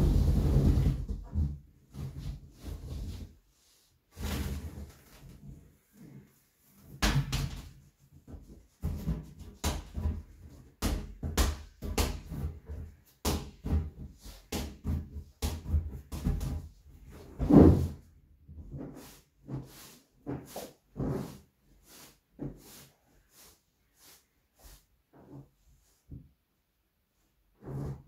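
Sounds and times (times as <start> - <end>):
exercise ball bouncing on wooden floor: 8.3 - 16.8.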